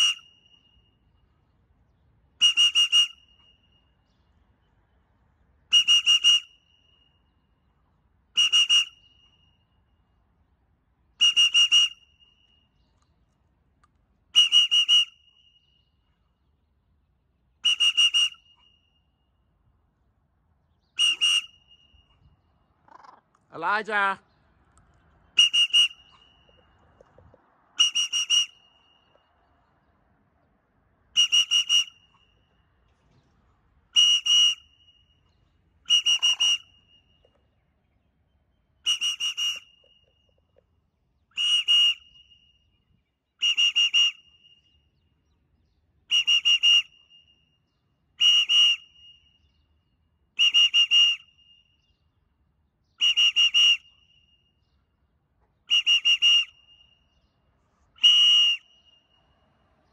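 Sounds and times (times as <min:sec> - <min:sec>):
whistle toots: 0:00.0 - 0:01.3, 0:02.4 - 0:04.2, 0:05.6 - 0:07.5, 0:08.3 - 0:10.0, 0:11.2 - 0:12.9, 0:14.3 - 0:16.1, 0:17.6 - 0:19.4, 0:20.8 - 0:22.5, 0:25.3 - 0:29.3, 0:31.1 - 0:32.6, 0:33.9 - 0:37.5, 0:38.8 - 0:40.5, 0:41.3 - 0:45.1, 0:46.1 - 0:49.8, 0:50.4 - 0:52.0, 0:52.9 - 0:54.8, 0:55.6 - 0:59.5.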